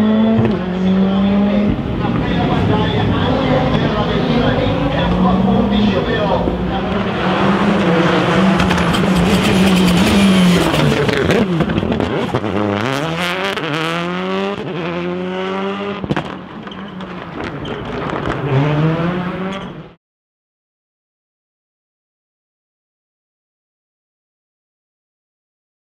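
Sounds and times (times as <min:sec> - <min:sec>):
rally car engine revving: 0:00.0 - 0:20.0
sharp engine pops: 0:16.0 - 0:16.4.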